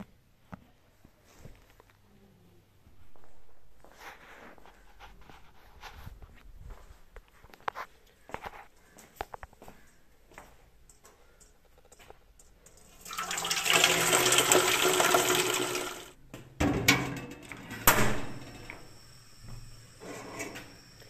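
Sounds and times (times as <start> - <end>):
water pouring into frying pan: 12.8 - 16.1.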